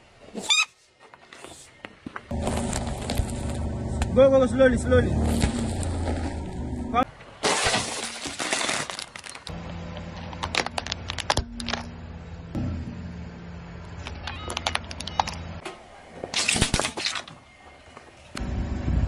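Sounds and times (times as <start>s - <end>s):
low engine hum: 2.3s - 7.0s, 9.5s - 15.6s, 18.4s - 19.0s
objects crushed under car tyre: 5.2s - 6.6s, 7.3s - 9.6s
plastic cracking and crunching: 7.4s - 9.6s, 10.2s - 11.8s.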